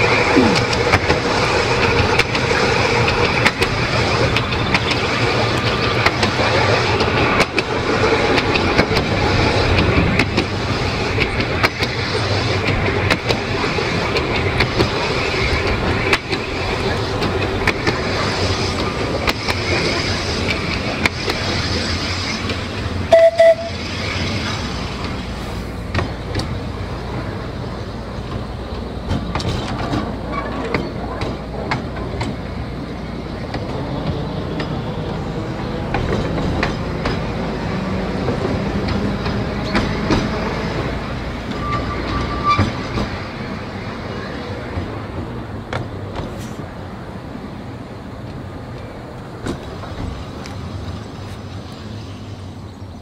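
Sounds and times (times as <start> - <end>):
tram running on track: 0.0 - 53.0
wheels clicking over rail joints: 0.0 - 53.0
tram horn hoots: 23.1 - 23.9.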